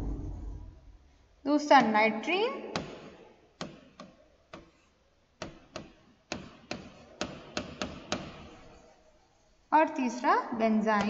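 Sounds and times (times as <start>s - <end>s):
stylus tapping on tablet: 2.7s - 4.8s, 5.4s - 8.6s.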